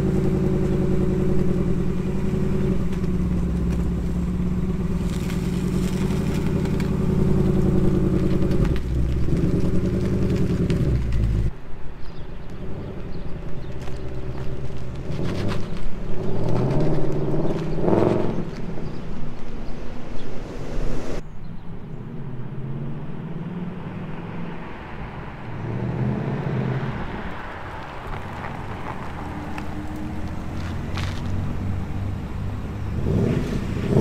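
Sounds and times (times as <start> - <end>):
car engine exhaust driving off: 0.0 - 11.5, 12.6 - 19.0, 25.6 - 34.0
car engine approaching: 0.0 - 34.0.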